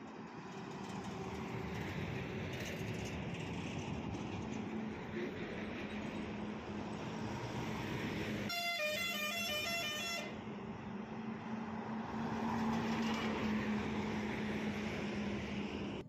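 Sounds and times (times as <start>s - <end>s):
heavy trucks passing: 0.0s - 16.0s
road noise: 0.0s - 16.0s
musical truck horn: 8.5s - 10.4s.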